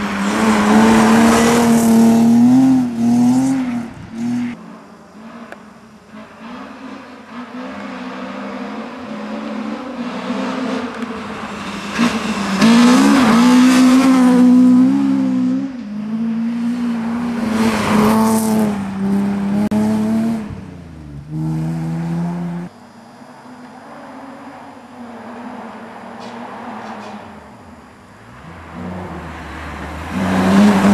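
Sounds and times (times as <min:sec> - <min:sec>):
rally car engine racing past: 0:00.0 - 0:04.6, 0:06.2 - 0:20.6, 0:28.4 - 0:30.9.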